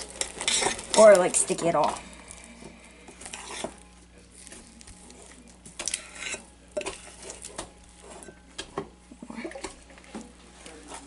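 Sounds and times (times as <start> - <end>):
spoon scraping glass bowl: 3.2 - 4.6, 5.2 - 8.4.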